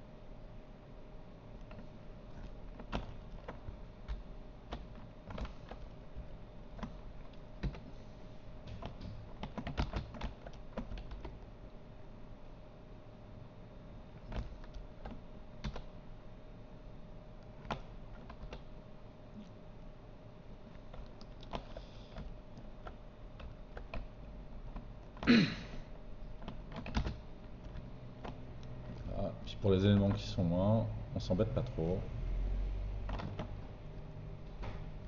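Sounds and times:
faint steady hum: 0.0s - 35.0s
computer keyboard and mouse clicks: 1.6s - 7.9s, 8.6s - 11.5s, 14.2s - 15.9s, 17.4s - 18.8s, 20.7s - 25.3s, 26.2s - 29.2s, 29.8s - 30.4s, 33.0s - 33.8s.

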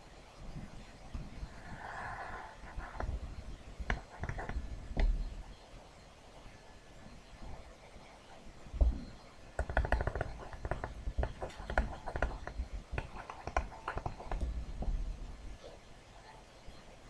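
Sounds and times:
stylus tapping on tablet screen: 3.8s - 5.4s, 8.8s - 15.0s.

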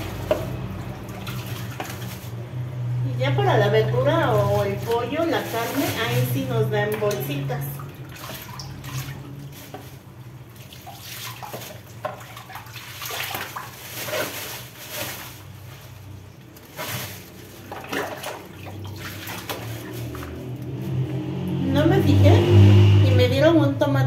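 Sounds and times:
plastic bag rustling: 0.0s - 2.5s, 3.6s - 7.4s, 8.7s - 21.0s
water splashing in a sink: 0.0s - 23.0s.

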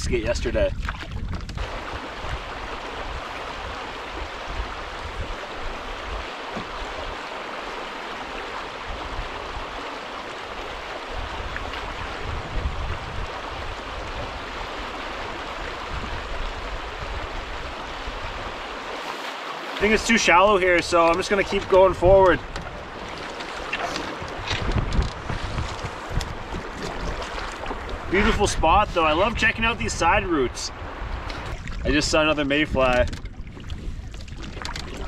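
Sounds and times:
wind rumble on microphone: 0.0s - 7.2s, 8.3s - 18.9s, 19.9s - 35.0s
river current rushing: 1.6s - 32.2s.

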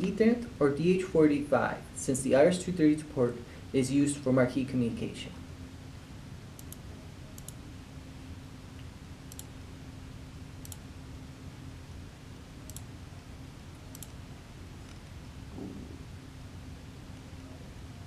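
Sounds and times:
low steady hum: 0.0s - 18.0s
computer mouse clicking: 6.6s - 6.8s, 7.4s - 7.6s, 9.3s - 9.5s, 10.6s - 10.8s, 12.7s - 12.9s, 13.9s - 14.2s.

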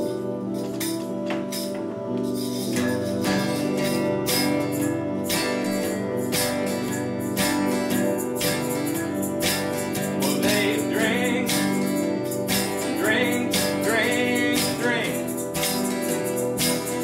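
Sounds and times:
acoustic guitar strumming: 0.0s - 17.0s
man singing: 10.2s - 12.0s, 12.9s - 15.4s.

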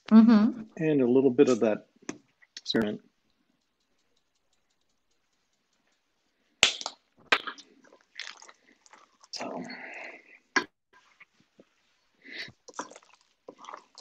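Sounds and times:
wet batter squelching: 2.1s - 14.0s.

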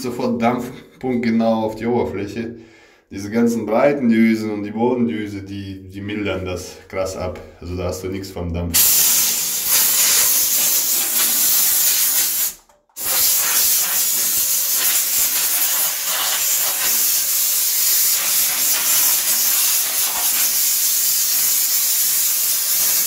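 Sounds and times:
steam cleaner hissing: 8.8s - 23.0s.

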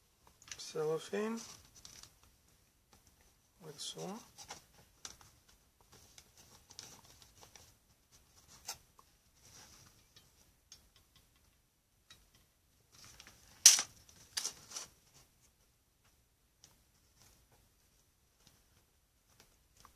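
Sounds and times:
craft handling clicks and rustles: 4.3s - 15.0s.

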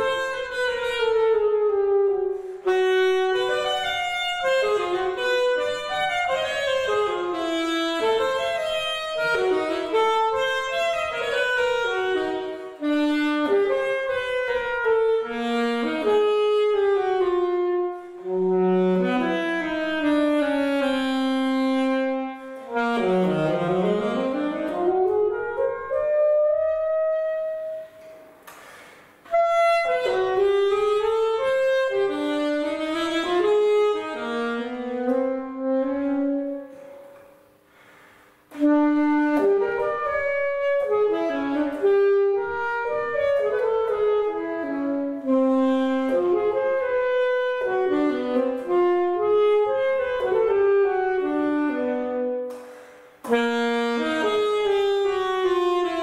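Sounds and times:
alto saxophone solo: 0.0s - 56.0s.

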